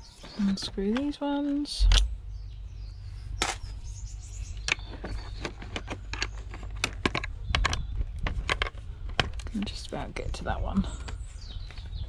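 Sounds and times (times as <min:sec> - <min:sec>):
low rumble: 0:01.8 - 0:09.5.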